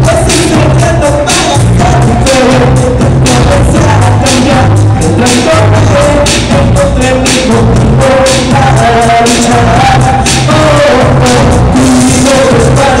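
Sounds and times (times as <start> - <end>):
person singing: 0.0 - 13.0
pop music through a pa system: 0.0 - 13.0
steady drum beat: 0.0 - 13.0.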